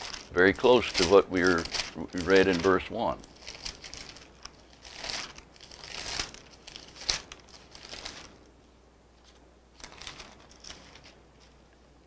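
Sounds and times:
thin paper pages rustling: 0.0s - 8.5s, 9.2s - 11.7s.

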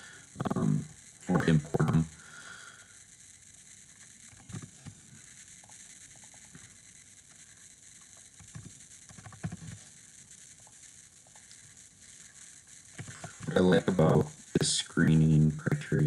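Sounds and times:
steady low hiss: 0.0s - 16.0s
keyboard typing: 8.4s - 9.8s.

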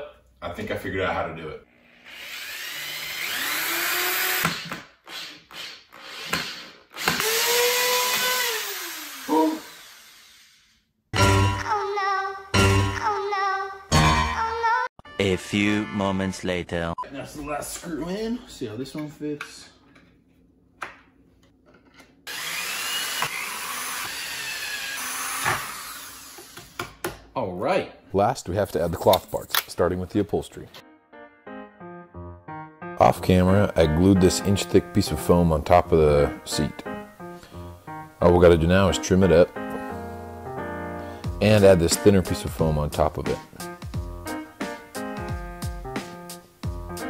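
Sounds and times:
electric drill whining: 1.7s - 10.8s, 22.3s - 27.0s.

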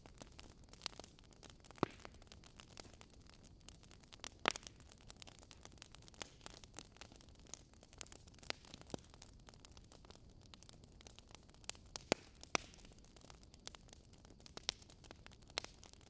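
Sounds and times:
logs crackling in fireplace: 0.0s - 16.0s.

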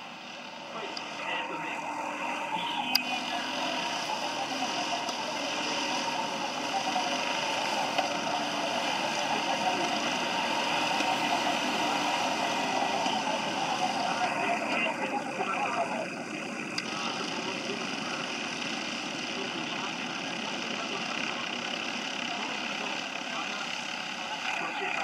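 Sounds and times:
kart engines buzzing: 0.0s - 17.8s.

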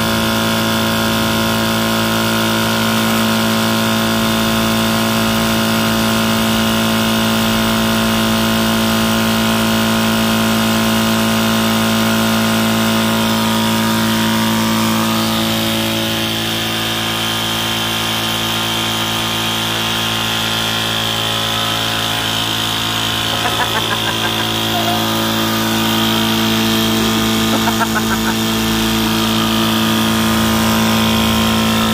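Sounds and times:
air compressor running: 0.0s - 31.9s.

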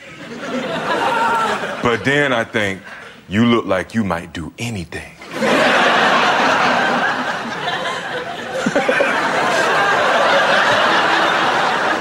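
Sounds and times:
studio audience laughing: 0.0s - 2.3s, 5.2s - 12.0s.

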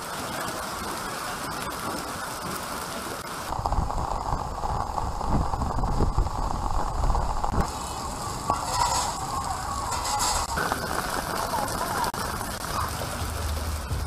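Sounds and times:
hail and rain pelting ground: 0.0s - 14.0s
dull uneven rumble: 3.5s - 14.0s.

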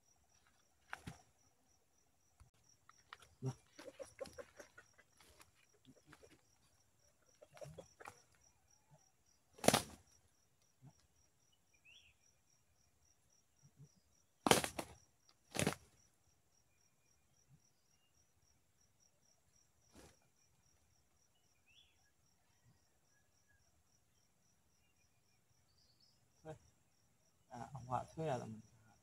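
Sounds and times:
insect chirring: 0.0s - 29.0s
rooster wing flapping: 9.6s - 10.0s, 14.5s - 15.8s.

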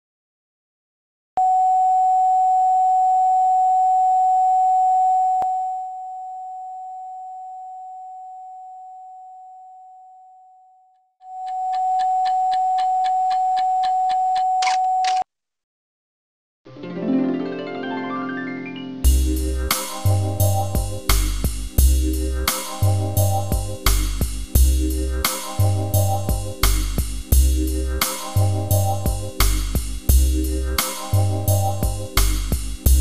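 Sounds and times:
fast ticking: 11.5s - 14.5s.

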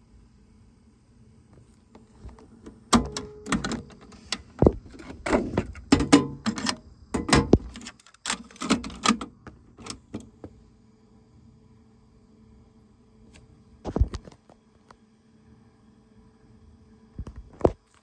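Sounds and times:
faint steady hum: 0.0s - 18.0s
plastic clicks and knocks on cassette deck: 2.2s - 10.3s.

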